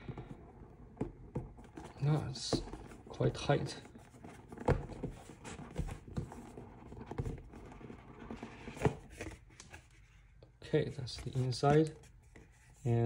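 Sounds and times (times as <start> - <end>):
box lid rubbing and scraping: 0.0 - 10.3.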